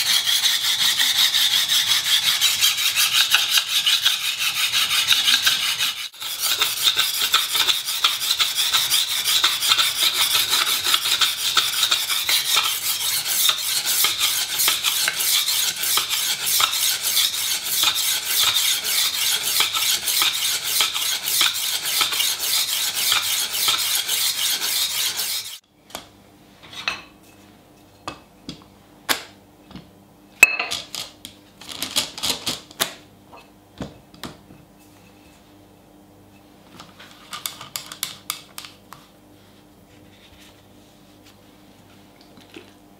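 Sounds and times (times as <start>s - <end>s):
knife rasping on sharpening plate: 0.0s - 25.6s.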